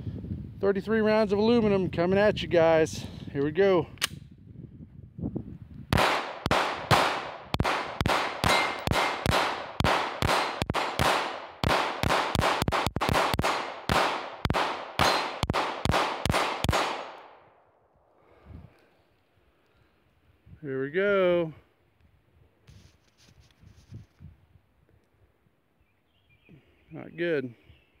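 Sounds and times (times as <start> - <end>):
pistol shots: 5.9 - 17.5.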